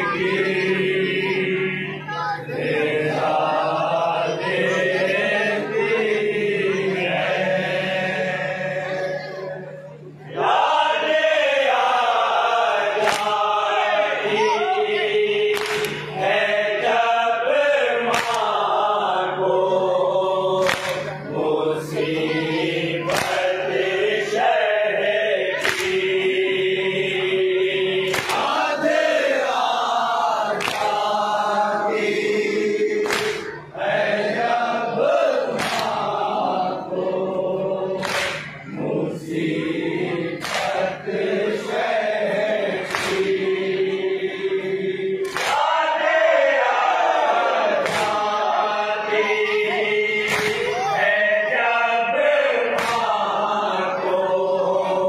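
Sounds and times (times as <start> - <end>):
men chanting in unison: 0.0 - 9.4, 10.3 - 55.0
chest-beating slaps: 13.0 - 13.4, 15.5 - 16.1, 18.1 - 18.6, 20.6 - 21.2, 23.1 - 23.5, 25.6 - 26.1, 28.0 - 28.6, 30.5 - 31.1, 33.0 - 33.5, 35.5 - 36.1, 38.0 - 38.6, 40.4 - 40.9, 42.8 - 43.4, 45.2 - 45.7, 47.8 - 48.4, 50.2 - 50.7, 52.7 - 53.2.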